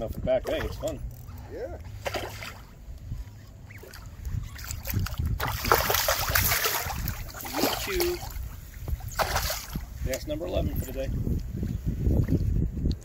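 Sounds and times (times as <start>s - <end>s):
wind rumble on microphone: 0.0s - 13.0s
fish splashing in water: 1.9s - 2.8s, 3.6s - 9.9s.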